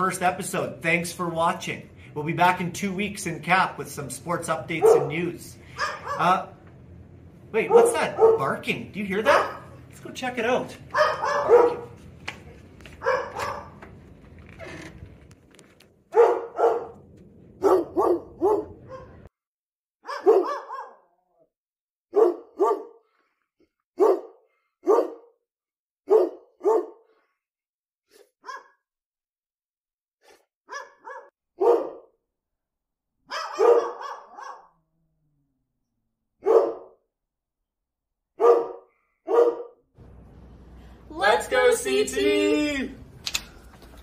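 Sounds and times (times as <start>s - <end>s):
dog barking: 4.8s - 6.4s, 7.7s - 8.5s, 9.2s - 9.8s, 10.9s - 12.0s, 13.0s - 13.8s, 16.1s - 17.0s, 17.6s - 19.3s, 20.0s - 21.2s, 22.1s - 23.1s, 24.0s - 25.3s, 26.1s - 27.1s, 28.4s - 28.8s, 30.3s - 32.2s, 33.3s - 34.8s, 36.4s - 37.0s, 38.4s - 39.8s.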